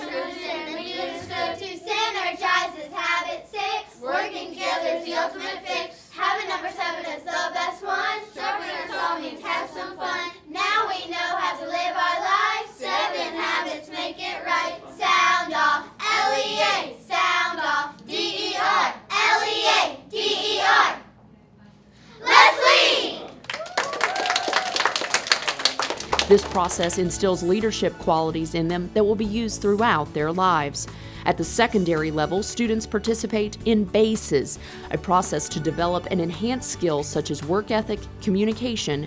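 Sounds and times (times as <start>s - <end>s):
children singing in unison: 0.0s - 10.4s.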